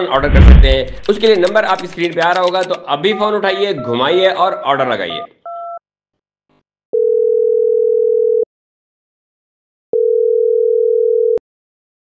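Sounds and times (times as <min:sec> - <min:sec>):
sharp click: 0:00.3 - 0:02.9
telephone ringback tone: 0:03.1 - 0:05.8, 0:07.0 - 0:08.4, 0:10.0 - 0:11.4.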